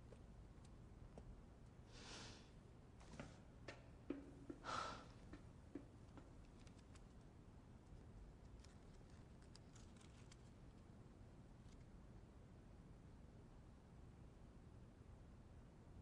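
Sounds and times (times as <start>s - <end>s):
soft exhale: 1.9s - 2.6s, 4.6s - 5.2s
paper crackling being folded: 8.4s - 10.8s.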